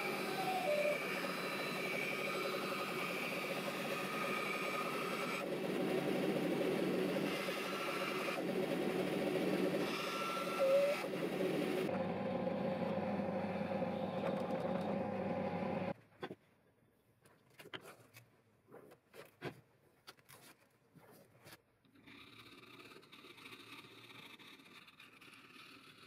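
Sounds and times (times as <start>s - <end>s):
band saw cutting steel: 0.0s - 15.9s
drill press drilling: 0.0s - 15.9s
hand work scrapes and taps: 16.0s - 16.5s, 17.2s - 26.0s.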